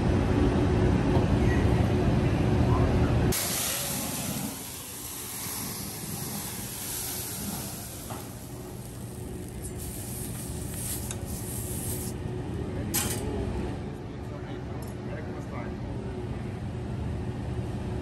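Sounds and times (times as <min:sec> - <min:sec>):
steady low hum: 0:00.0 - 0:18.0
flaming oil hissing on griddle: 0:03.3 - 0:12.2.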